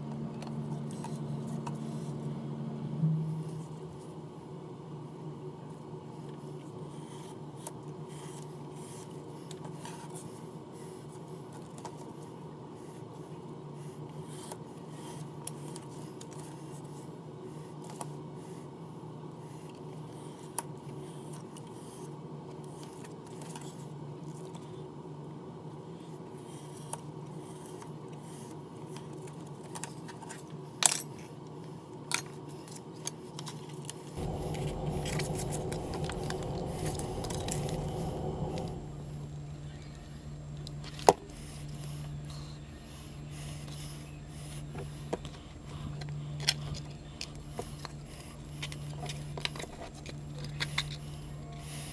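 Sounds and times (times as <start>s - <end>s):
steady low hum: 0.0s - 4.6s, 34.2s - 46.2s.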